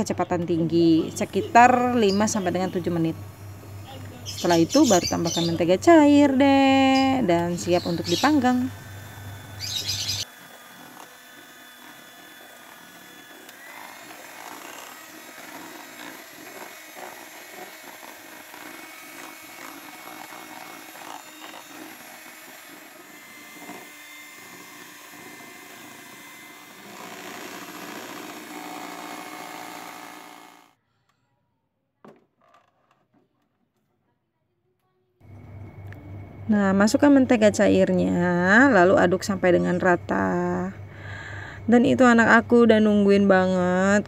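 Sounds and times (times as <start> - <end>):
electric hand mixer running: 0.7 - 30.8.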